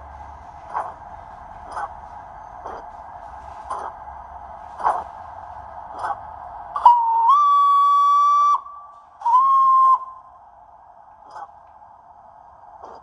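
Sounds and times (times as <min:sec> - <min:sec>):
steady steam hiss: 0:00.0 - 0:13.0
steam exhaust chuffs: 0:00.0 - 0:13.0
steam whistle blowing: 0:06.8 - 0:10.3.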